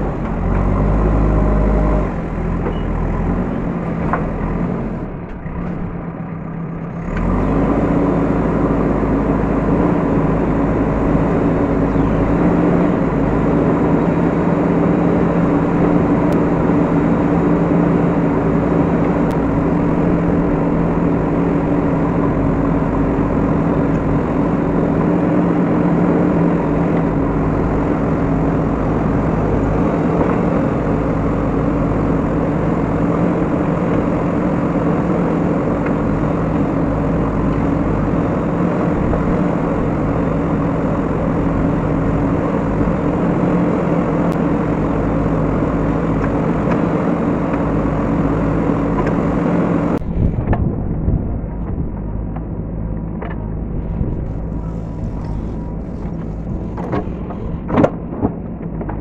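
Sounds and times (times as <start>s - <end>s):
diesel engine revving: 0.0s - 59.0s.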